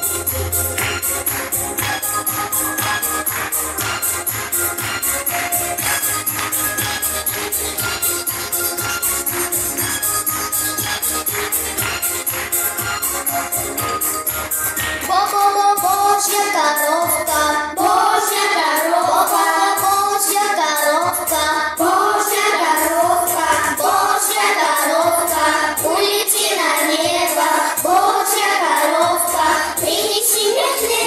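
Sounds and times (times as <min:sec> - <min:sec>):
pop backing track with beat: 0:00.0 - 0:31.0
children singing into microphones: 0:15.0 - 0:31.0.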